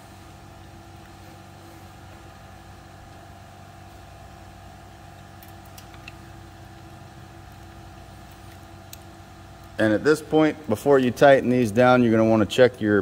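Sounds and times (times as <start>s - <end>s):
steady machine hum: 0.0s - 13.0s
faint clicks of wire terminals: 5.1s - 6.3s.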